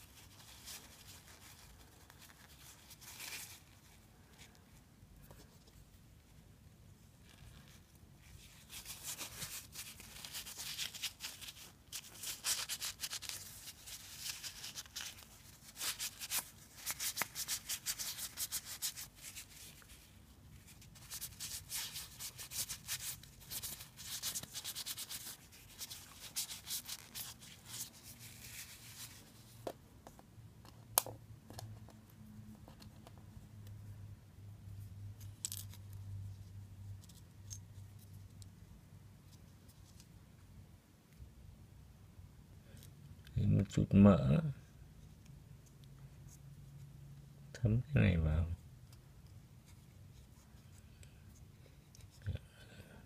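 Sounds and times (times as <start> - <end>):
tissue rubbing on reel: 7.2 - 29.6.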